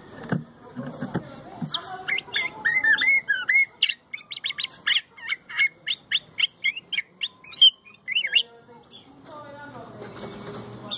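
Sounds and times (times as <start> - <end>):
bird singing whistles and chirps: 1.6 - 9.1.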